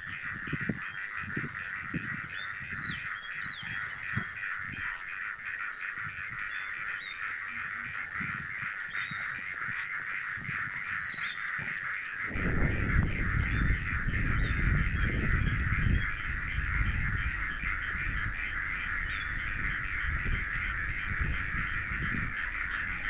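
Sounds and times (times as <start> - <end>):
bird chirps: 0.0 - 23.0
high steady whine: 0.0 - 23.0
pulsing chorus of calling animals: 0.0 - 23.0
soft low thumps: 10.4 - 23.0.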